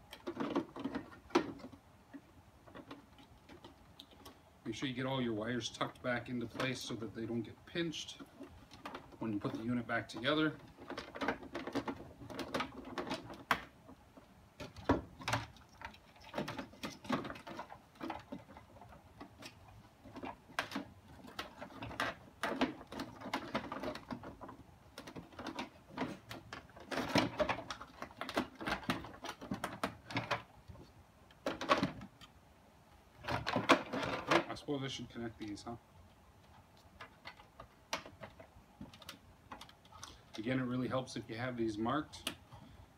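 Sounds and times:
plastic and metal parts rattling: 0.0 - 4.4, 5.4 - 32.4, 33.1 - 35.8, 36.4 - 41.0.

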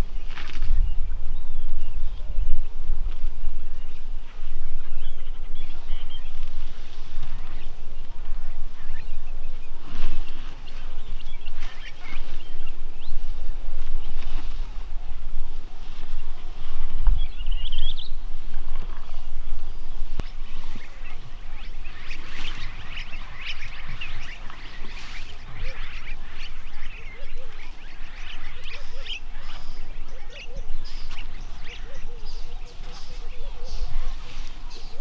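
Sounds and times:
low rumble: 0.0 - 35.0
small birds chirping: 0.0 - 35.0
bird trill: 3.6 - 13.4, 19.0 - 35.0.

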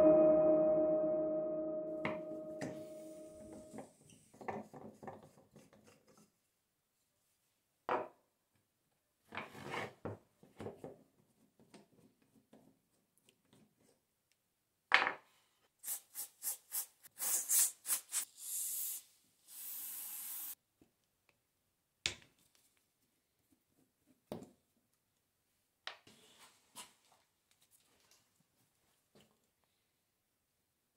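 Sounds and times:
aerosol can hissing: 15.8 - 20.6.

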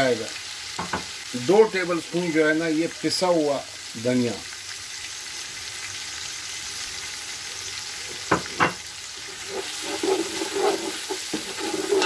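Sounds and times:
onions sizzling in hot oil: 0.0 - 12.0
wooden spoon stirring and scraping: 9.2 - 12.0.

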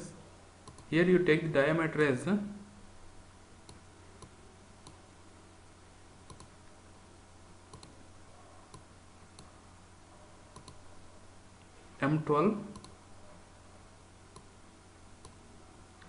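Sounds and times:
low steady hum: 0.0 - 16.0
computer mouse clicks: 0.6 - 0.9, 3.6 - 5.0, 6.3 - 6.6, 7.7 - 8.0, 8.7 - 9.5, 10.5 - 10.8, 12.7 - 13.0, 14.3 - 14.5, 15.2 - 15.4.

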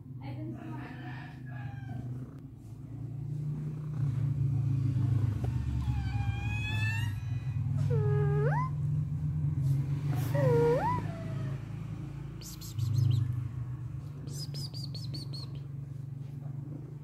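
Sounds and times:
cat meowing: 5.5 - 8.8, 10.4 - 11.3.

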